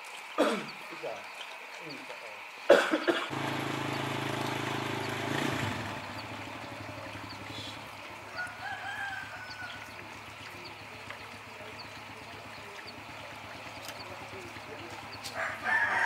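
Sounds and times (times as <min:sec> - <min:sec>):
distant rooster crowing: 0:08.2 - 0:10.6, 0:15.3 - 0:16.0.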